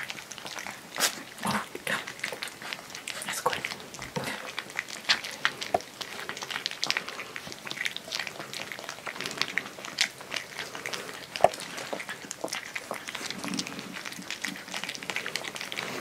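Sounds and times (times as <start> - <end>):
puppies eating wet food: 0.0 - 16.0.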